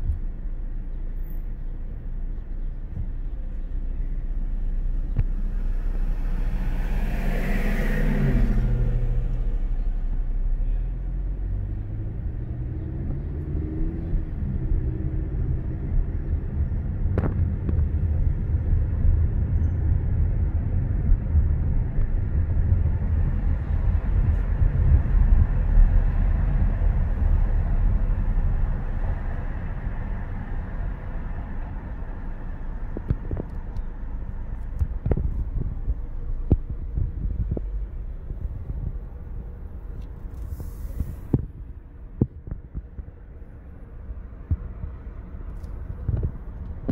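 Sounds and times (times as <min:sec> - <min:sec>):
car engine: 0:00.0 - 0:46.9
road rumble: 0:00.0 - 0:46.9
vehicle passing by: 0:05.2 - 0:19.3.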